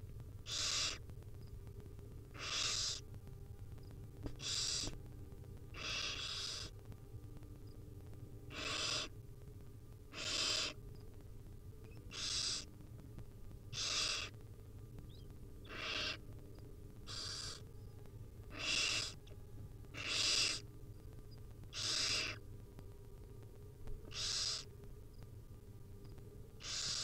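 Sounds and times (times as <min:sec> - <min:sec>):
owl chicks hissing begging calls: 0:00.4 - 0:01.0, 0:02.3 - 0:03.0, 0:04.4 - 0:05.0, 0:05.7 - 0:06.8, 0:08.5 - 0:09.2, 0:10.1 - 0:10.8, 0:12.0 - 0:12.7, 0:13.7 - 0:14.4, 0:15.1 - 0:16.2, 0:17.0 - 0:17.7, 0:18.5 - 0:19.3, 0:19.9 - 0:20.7, 0:21.7 - 0:22.4, 0:24.0 - 0:24.7, 0:26.6 - 0:27.0.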